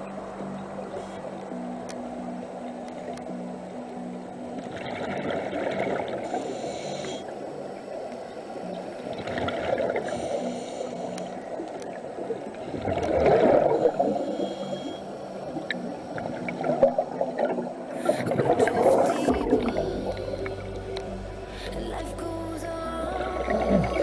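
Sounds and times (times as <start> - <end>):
underwater low rumble: 0.0 - 24.0
diver regulator breathing: 6.2 - 8.6, 9.9 - 11.7, 12.7 - 17.0.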